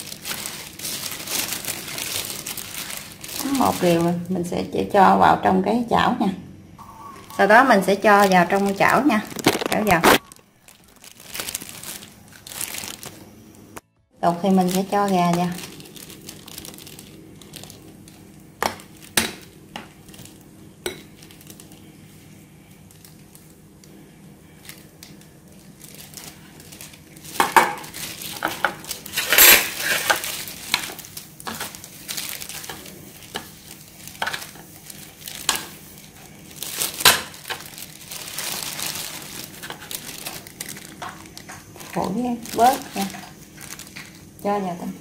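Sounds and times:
breadcrumbs rustling: 0:00.0 - 0:04.2, 0:07.3 - 0:13.8, 0:14.4 - 0:44.9.

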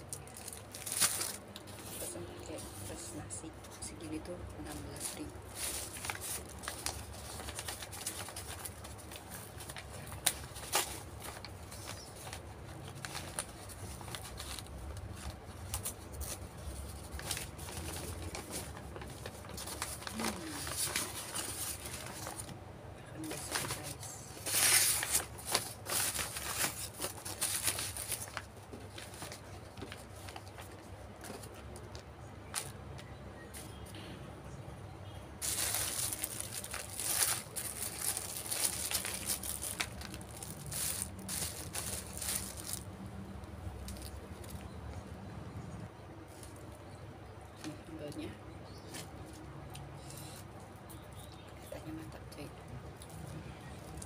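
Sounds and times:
paper crinkling and rustling: 0:00.0 - 0:22.6, 0:23.2 - 0:33.9, 0:35.4 - 0:44.8.

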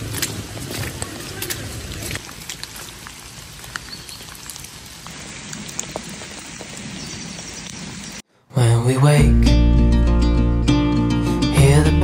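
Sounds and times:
raindrops ticking close by: 0:00.0 - 0:08.2
steady rain falling: 0:00.0 - 0:08.2.

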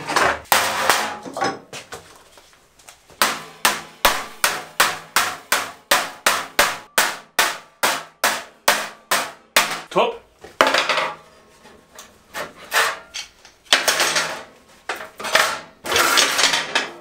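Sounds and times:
hammer striking sheet metal: 0:00.4 - 0:01.4, 0:03.2 - 0:09.9.

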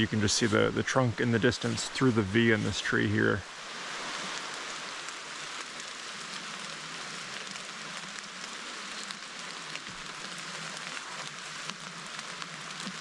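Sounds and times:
rain on foliage: 0:00.0 - 0:13.0.

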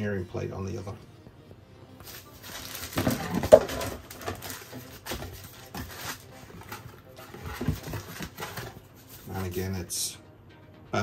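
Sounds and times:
cardboard and plastic bag rustling: 0:02.0 - 0:09.5.

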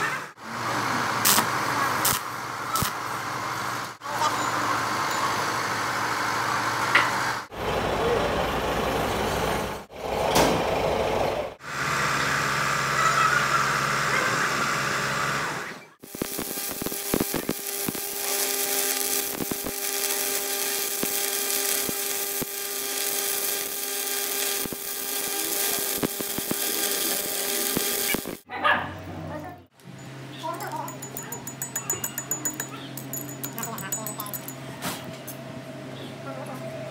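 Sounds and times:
welding arc crackling sizzle: 0:00.6 - 0:04.0, 0:16.0 - 0:28.5.

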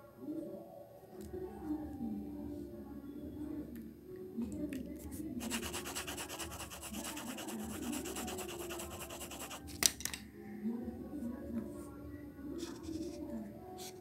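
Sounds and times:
pencil scratching on paper: 0:05.4 - 0:09.6, 0:12.6 - 0:13.2.

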